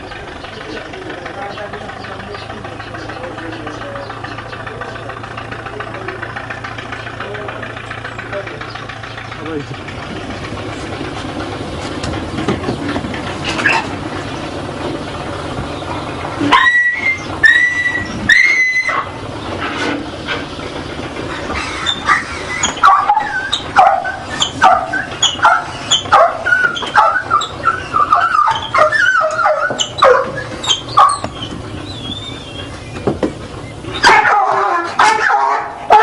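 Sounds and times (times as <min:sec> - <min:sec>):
dog whining and yelping: 0:16.5 - 0:19.1, 0:21.5 - 0:32.7.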